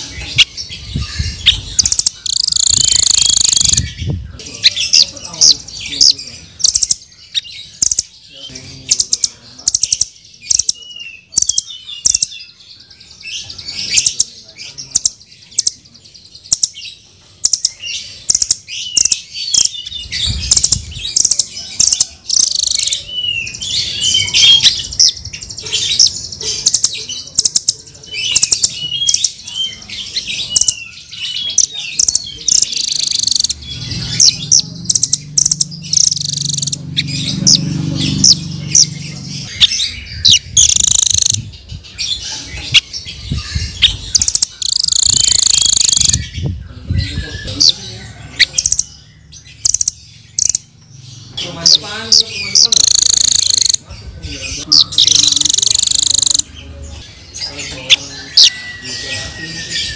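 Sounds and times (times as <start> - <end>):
bird calling sharp high chips: 1.5 - 3.8, 39.7 - 41.4, 43.8 - 46.2, 52.6 - 53.8, 54.9 - 56.4.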